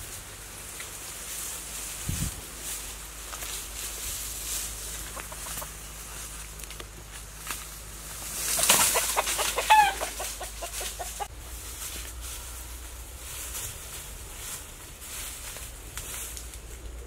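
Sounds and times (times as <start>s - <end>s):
dry bamboo leaves rustling: 0.0s - 17.0s
rooster clucking: 4.7s - 6.4s, 8.3s - 11.5s.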